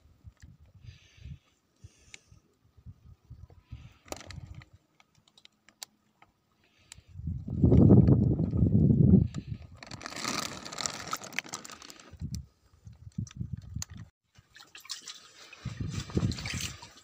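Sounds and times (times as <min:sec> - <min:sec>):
water sloshing and dripping: 0:14.3 - 0:17.0.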